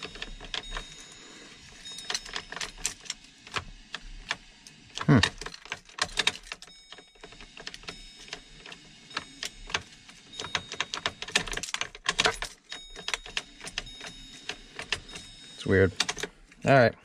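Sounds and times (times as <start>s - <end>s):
key ring jingling: 0.0s - 3.5s, 5.0s - 16.8s
key clicking in ignition lock: 5.0s - 15.4s, 16.0s - 16.6s.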